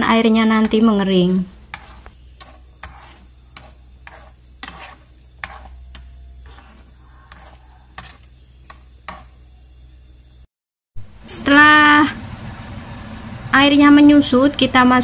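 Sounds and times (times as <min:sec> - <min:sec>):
low steady hum: 0:00.0 - 0:15.0
metal spoon scraping a pan: 0:00.4 - 0:09.4.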